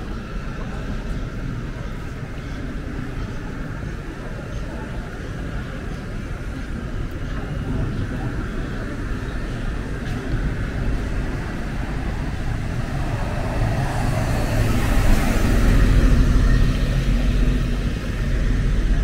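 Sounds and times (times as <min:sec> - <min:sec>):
passing vehicle: 0:09.7 - 0:19.0.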